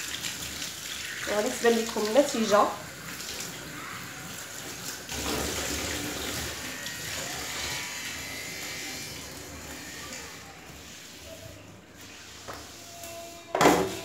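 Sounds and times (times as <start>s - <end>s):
tap water running into sink: 0.0s - 7.3s.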